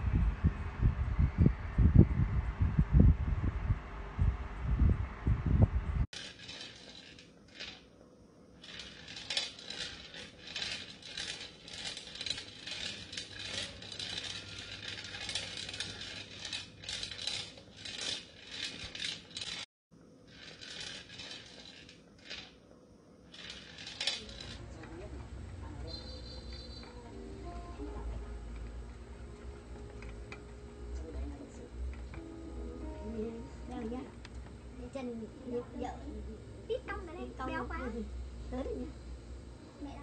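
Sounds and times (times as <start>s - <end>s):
low rumble: 0.0s - 6.1s
plastic exercise wheel rattling: 6.2s - 7.8s, 8.6s - 19.7s, 20.3s - 22.6s, 23.3s - 27.0s.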